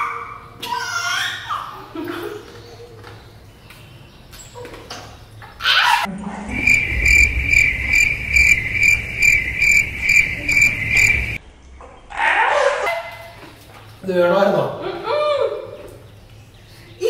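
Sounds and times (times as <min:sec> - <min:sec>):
low beat: 0:06.3 - 0:11.4
pulsing chirping tone: 0:06.5 - 0:11.4.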